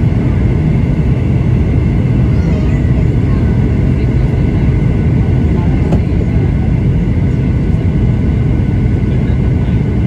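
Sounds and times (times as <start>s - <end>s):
aircraft cabin engine rumble: 0.0s - 10.0s.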